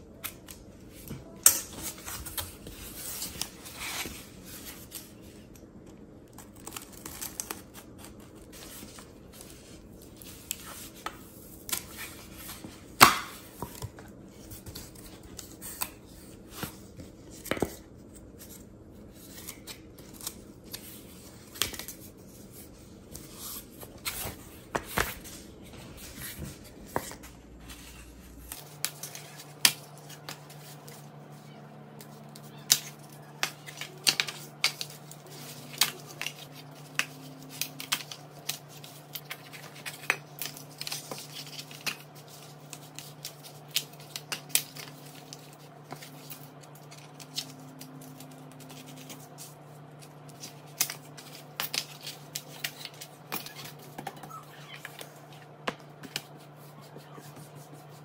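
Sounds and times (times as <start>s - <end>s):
steady low hum: 0.0s - 58.0s
cardboard snapping and crackling: 6.3s - 9.7s, 32.0s - 49.4s.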